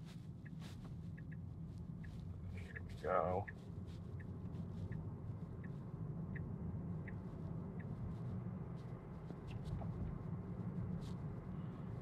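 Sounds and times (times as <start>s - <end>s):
car tyre and road hum: 0.0s - 12.0s
turn signal ticking: 0.3s - 8.7s.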